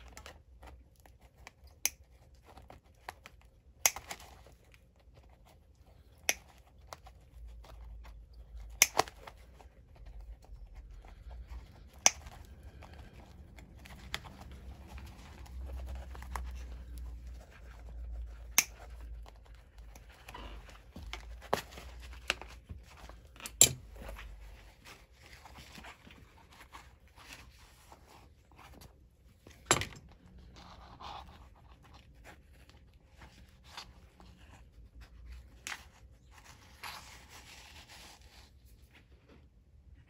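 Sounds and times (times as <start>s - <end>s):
nippers snapping stitching: 8.7s - 9.4s, 18.4s - 19.0s.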